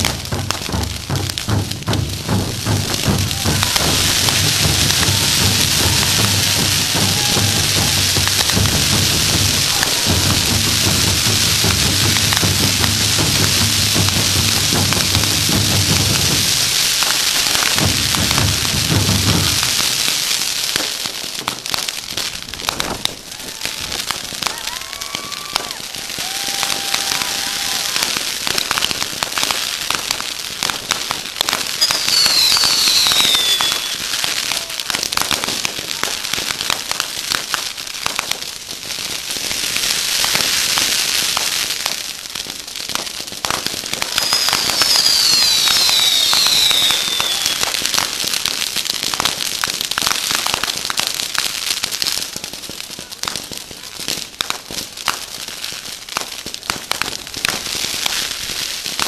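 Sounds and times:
fireworks crackling and popping: 0:00.0 - 0:59.0
fireworks whistles sliding down: 0:03.0 - 0:14.1, 0:24.5 - 0:28.2, 0:31.6 - 0:34.7, 0:44.0 - 0:48.1.

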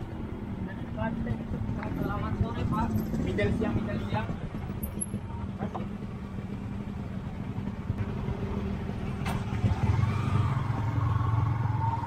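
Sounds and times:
motorcycle engine revving: 0:01.5 - 0:12.0.

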